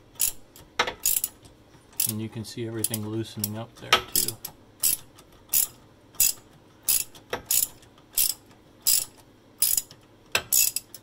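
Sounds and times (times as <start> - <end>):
ratchet pawl clicking: 0.2 - 1.4, 2.0 - 2.2, 2.8 - 11.0.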